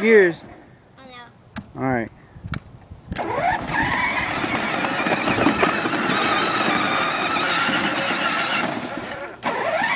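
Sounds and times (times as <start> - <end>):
toy quad motors whining: 3.2 - 9.9.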